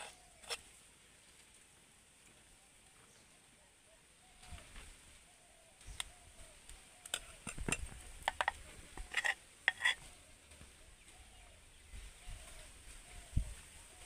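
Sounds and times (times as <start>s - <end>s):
spoon clinking against bowls and tin: 7.2s - 10.0s.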